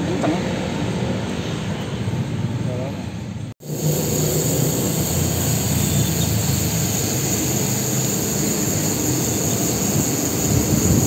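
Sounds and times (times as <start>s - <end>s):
bicycle road noise: 3.6s - 11.0s
wind rumble on microphone: 10.0s - 11.0s.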